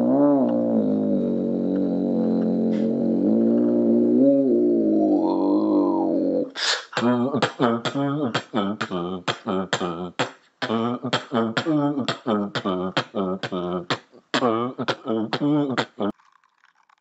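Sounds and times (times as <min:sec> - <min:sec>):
man beatboxing: 0:06.6 - 0:16.1.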